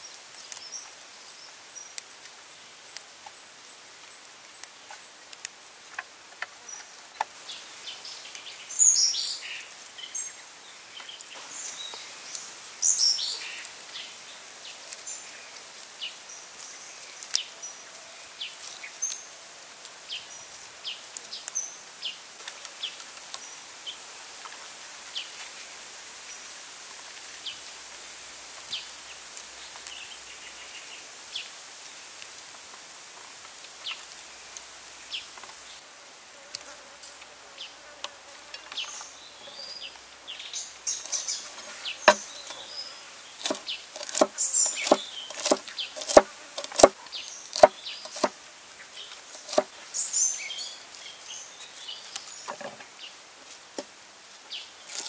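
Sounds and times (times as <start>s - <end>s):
high insect buzz: 33.9s - 50.4s
vegetables rustling: 40.8s - 48.4s, 49.1s - 50.0s
cleaver chopping on wooden board: 42.0s - 42.2s, 43.4s - 48.4s, 49.4s - 49.7s.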